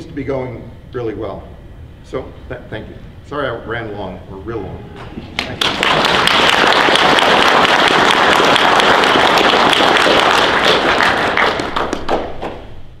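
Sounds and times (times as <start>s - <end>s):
audience applauding: 5.4s - 12.6s.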